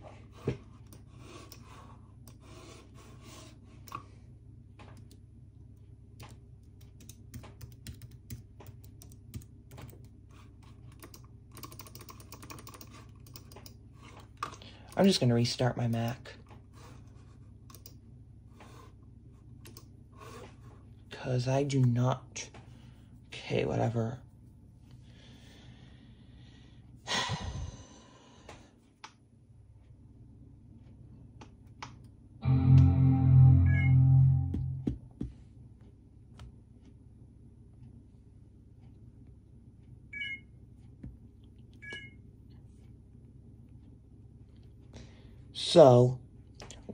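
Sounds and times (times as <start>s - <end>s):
keyboard typing: 6.2s - 13.8s
computer startup chime: 32.4s - 34.9s.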